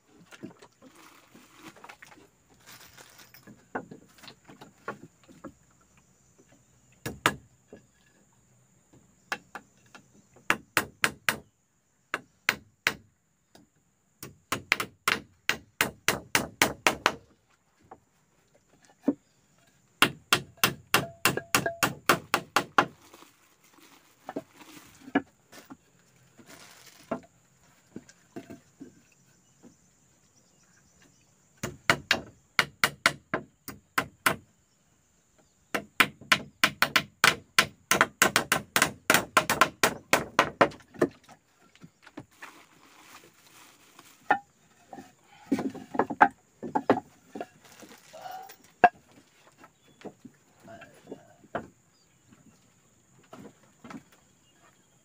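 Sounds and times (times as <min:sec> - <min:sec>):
hand tool striking wood: 0:07.0 - 0:07.8, 0:09.3 - 0:11.4, 0:14.2 - 0:17.2, 0:20.0 - 0:23.0, 0:31.6 - 0:34.4, 0:35.7 - 0:41.3.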